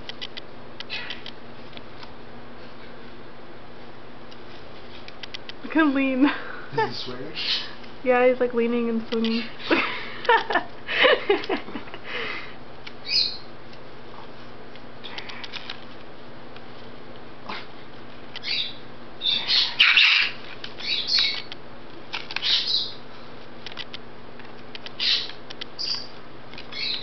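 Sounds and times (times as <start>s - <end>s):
cockatoo high-pitched calls: 13.0s - 13.5s, 18.4s - 21.5s, 22.3s - 23.0s, 25.0s - 27.0s.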